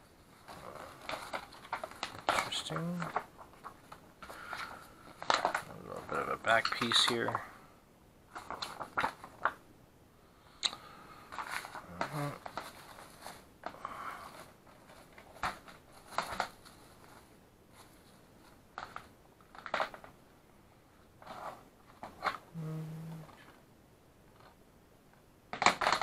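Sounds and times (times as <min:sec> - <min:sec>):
plastic wrap crinkling: 0:00.3 - 0:07.4, 0:08.3 - 0:09.6, 0:11.3 - 0:20.2.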